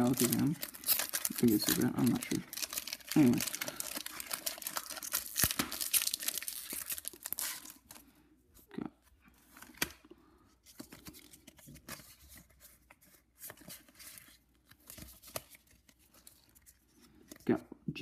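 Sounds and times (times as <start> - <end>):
trading cards rustling and ticking: 0.0 - 8.0.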